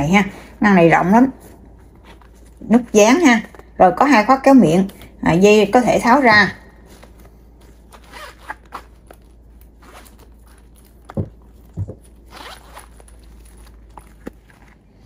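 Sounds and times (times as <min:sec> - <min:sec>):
bag handling rustle: 0:01.2 - 0:03.8, 0:06.7 - 0:15.0
zippers being pulled open: 0:07.9 - 0:10.9, 0:12.1 - 0:14.7
soft thumps: 0:11.1 - 0:12.2.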